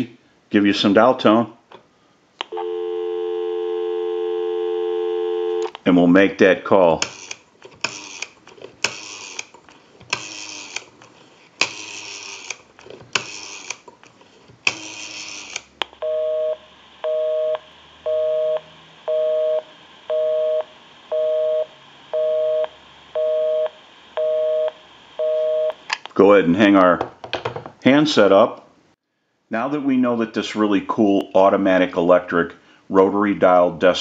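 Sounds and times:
rotary dial whirring: 7.0s - 15.8s
two-tone busy signal beeps: 16.0s - 25.8s.

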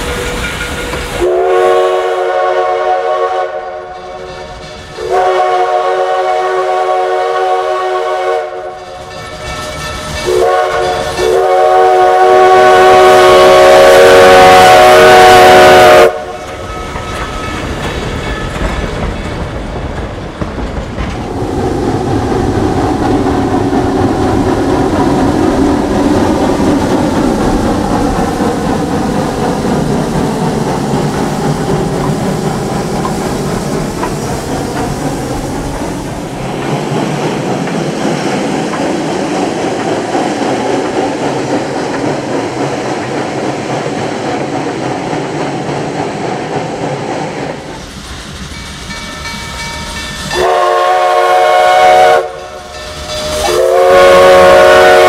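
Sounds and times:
steam locomotive chime whistle: 0.0s - 18.6s, 48.5s - 55.0s
train rumbling past: 0.0s - 55.0s
clickety-clack of wheels: 16.4s - 50.4s.

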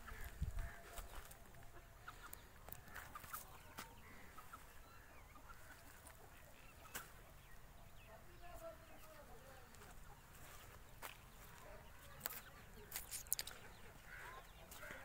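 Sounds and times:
distant bird calls: 0.0s - 15.0s.

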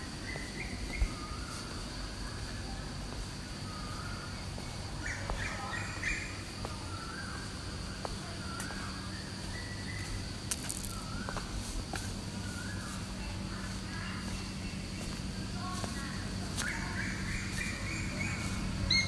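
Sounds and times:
birds chirping: 12.3s - 19.0s.

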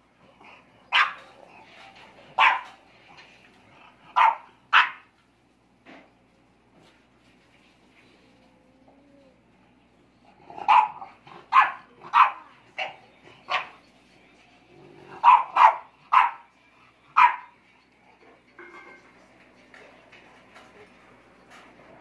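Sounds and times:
dog barking: 0.9s - 1.3s, 2.4s - 2.8s, 4.2s - 5.1s, 10.6s - 13.8s, 15.1s - 16.5s, 17.2s - 17.6s.

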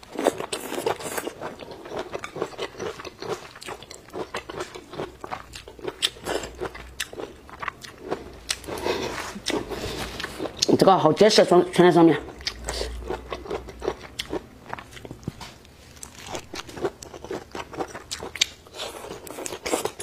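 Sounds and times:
person chewing and crunching food: 0.0s - 20.0s.

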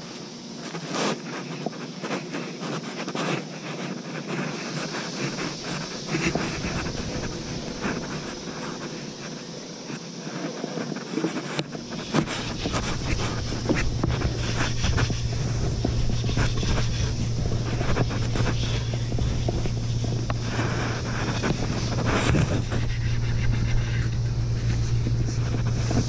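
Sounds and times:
fabric rubbing on microphone: 0.5s - 26.0s
low steady hum: 1.2s - 26.0s.

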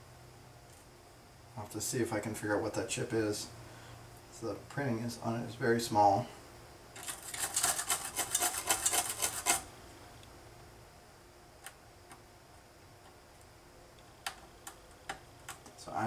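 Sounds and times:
brush scrubbing circuit board: 7.0s - 9.7s.

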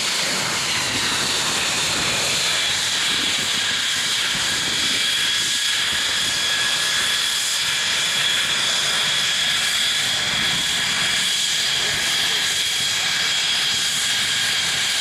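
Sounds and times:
jet engine rush with whine: 0.0s - 15.0s.

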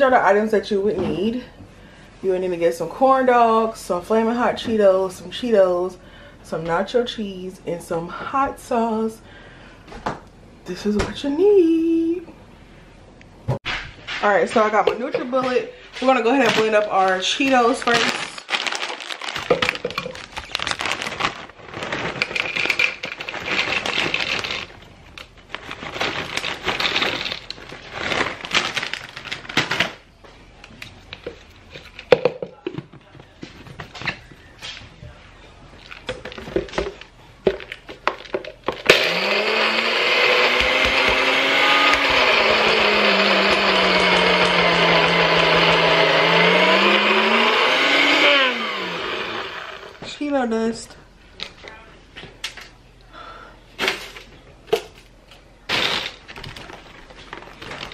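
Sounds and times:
chip bags crinkling: 16.0s - 30.0s, 55.7s - 57.9s
snacks rattling into a cup: 16.5s - 24.7s
blender motor grinding: 38.8s - 50.0s.

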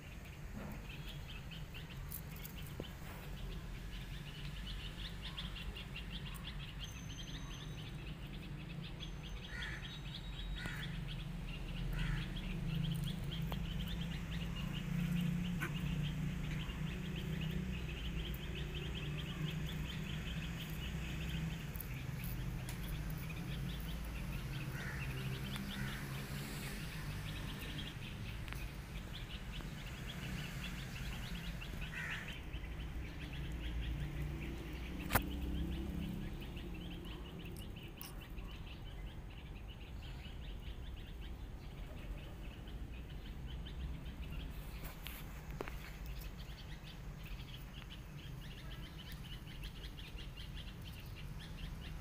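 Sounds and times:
birds chirping: 0.0s - 52.0s
sharp click: 35.0s - 35.4s.

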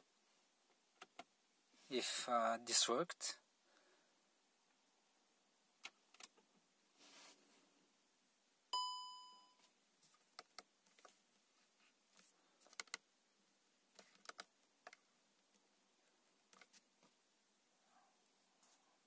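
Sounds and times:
warning chime ding: 8.8s - 9.6s.

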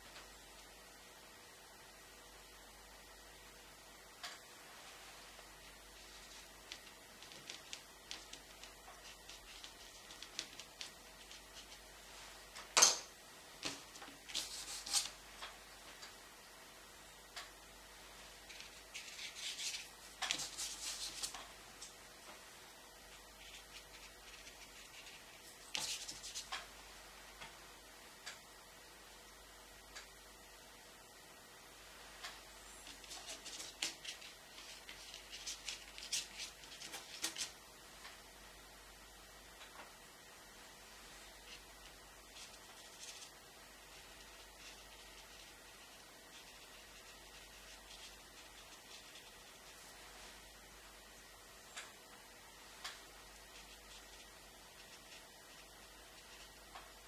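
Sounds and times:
scratchy paintbrush strokes: 4.7s - 12.5s, 13.6s - 15.5s, 18.1s - 26.7s, 32.2s - 37.6s, 41.0s - 50.5s, 52.7s - 57.0s.

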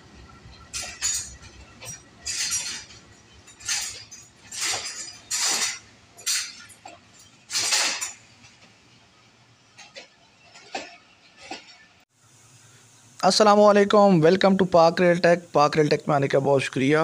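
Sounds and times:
train rolling rumble: 0.0s - 12.0s
metallic wheel clinks and screeches: 0.3s - 8.7s, 9.6s - 12.0s.

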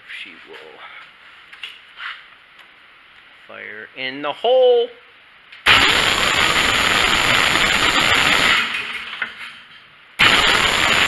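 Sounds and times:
gasoline engine turning over: 5.7s - 8.8s.

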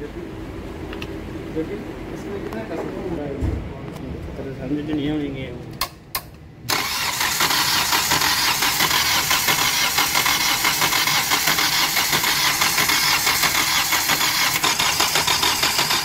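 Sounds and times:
starter motor cranking engine: 6.7s - 16.0s.

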